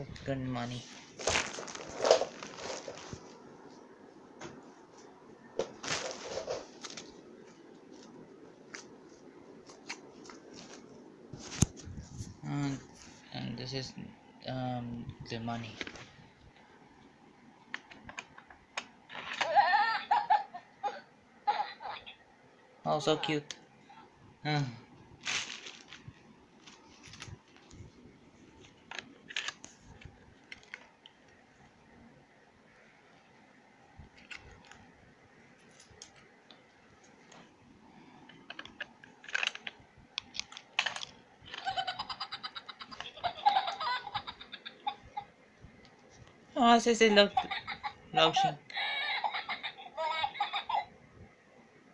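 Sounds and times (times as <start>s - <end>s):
plush toy rustling: 0.7s - 3.5s, 5.7s - 12.4s, 25.2s - 28.7s
packaging crinkling: 1.0s - 3.4s, 5.7s - 7.2s, 25.2s - 27.7s, 28.6s - 31.1s.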